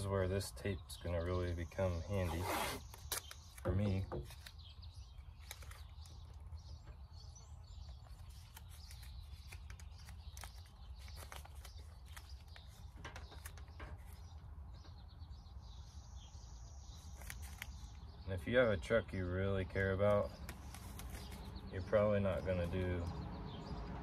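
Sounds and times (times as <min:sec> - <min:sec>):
tape rustling and clicking: 0:02.2 - 0:15.1, 0:16.9 - 0:18.2, 0:20.0 - 0:21.7.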